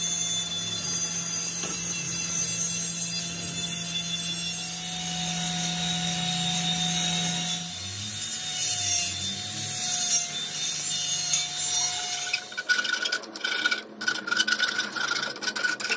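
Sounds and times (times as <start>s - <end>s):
metal scraping against metal: 11.6s - 15.9s.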